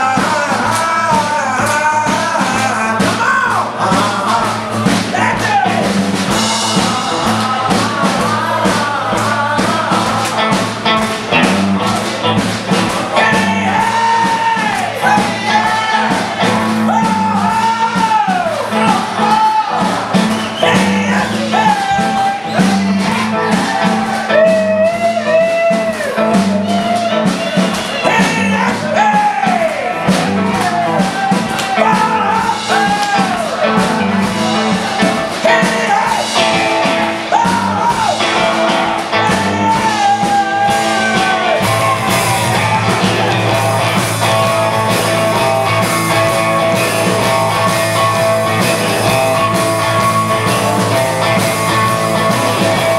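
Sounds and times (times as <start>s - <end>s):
man singing: 0.0s - 44.6s
rockabilly band playing live: 0.0s - 52.9s.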